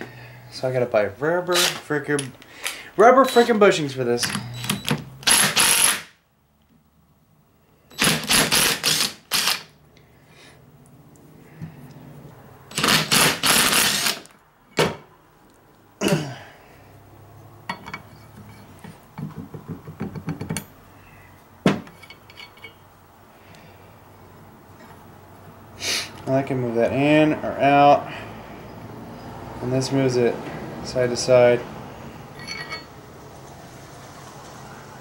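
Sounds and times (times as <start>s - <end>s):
impact driver hammering: 4.3s - 6.1s, 8.0s - 9.7s, 12.7s - 15.0s
metal clicks and clinks: 21.9s - 22.8s, 32.4s - 32.9s.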